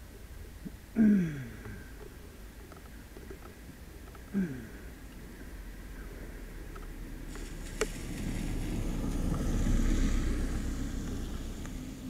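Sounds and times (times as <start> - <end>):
car passing on wet dirt road: 7.1 - 12.0.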